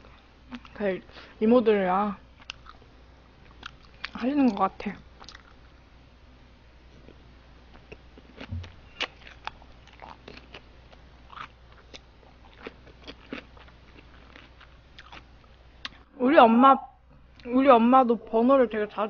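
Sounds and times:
person chewing crunchy food: 2.4 - 4.6, 5.2 - 5.7, 6.9 - 16.0.

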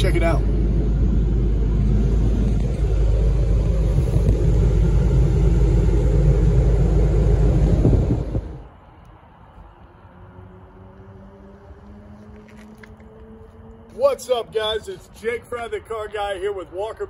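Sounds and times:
car wash machinery rumbling: 0.0 - 8.8.

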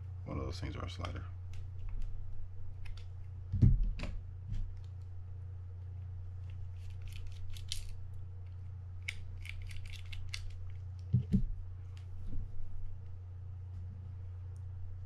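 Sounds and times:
steady low hum: 0.0 - 15.0
dull thumps: 11.1 - 11.6.

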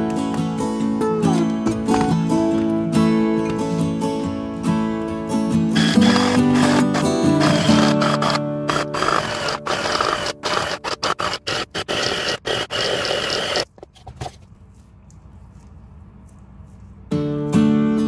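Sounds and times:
electric chopper chopping meat: 5.8 - 13.6.

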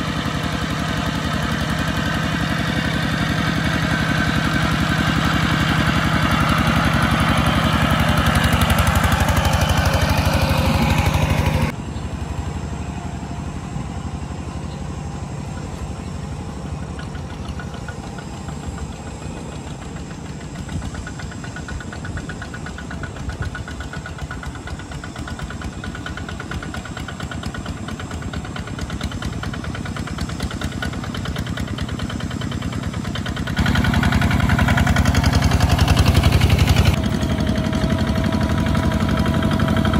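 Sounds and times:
diesel tractor engine chugging: 0.0 - 39.9.

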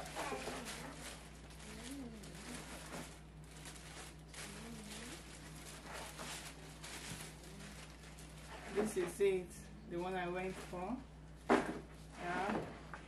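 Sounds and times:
plastic bag crinkling: 0.0 - 9.5
low electrical hum: 0.0 - 13.0
faint wavering voice-like sounds: 1.6 - 2.8.

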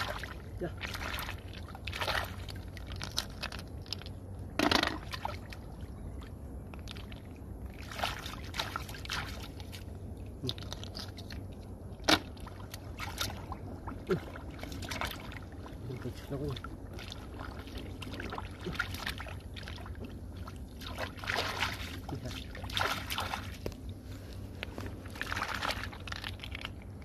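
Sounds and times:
hands splashing in muddy water: 0.0 - 4.2, 7.8 - 11.4, 12.0 - 23.6, 25.0 - 27.0.

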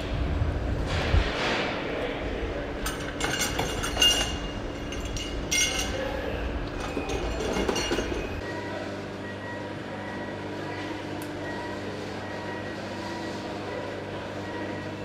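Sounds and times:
machinery hum: 0.0 - 15.0
metallic clinks and clatters: 2.8 - 6.2, 6.8 - 8.4.

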